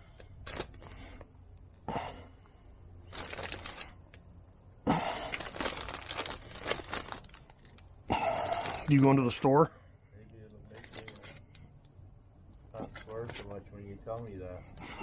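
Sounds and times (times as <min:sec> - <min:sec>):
plastic bag crinkling: 0:00.4 - 0:01.1, 0:03.1 - 0:04.2, 0:05.3 - 0:09.0.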